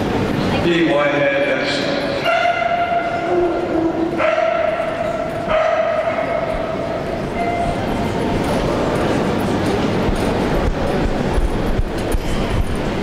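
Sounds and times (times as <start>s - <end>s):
dog howling: 2.3s - 6.8s.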